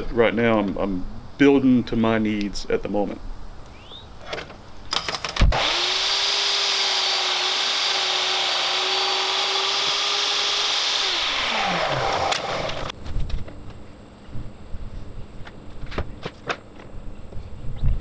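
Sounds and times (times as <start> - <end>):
table saw cutting board: 5.5 - 12.9.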